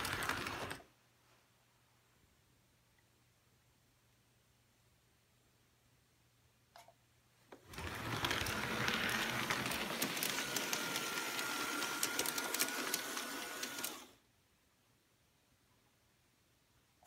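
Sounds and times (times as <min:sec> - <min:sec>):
wheels clicking over rail joints: 0:07.7 - 0:14.0
model train motor whirring: 0:07.7 - 0:14.2.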